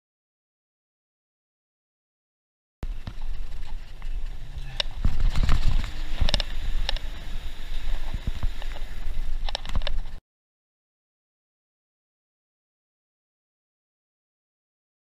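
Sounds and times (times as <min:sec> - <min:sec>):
bicycle clacking and rattling: 0:02.8 - 0:07.1
wind and tyres rumbling: 0:02.8 - 0:10.2.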